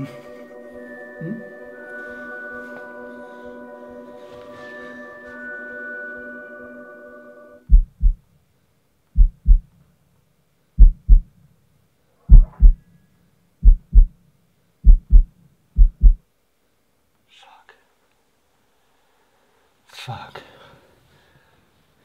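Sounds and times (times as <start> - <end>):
held music chord: 0.0 - 7.7
heartbeat thumps: 7.7 - 8.3, 9.2 - 9.7, 10.8 - 11.3, 12.3 - 12.8, 13.6 - 14.2, 14.8 - 16.2.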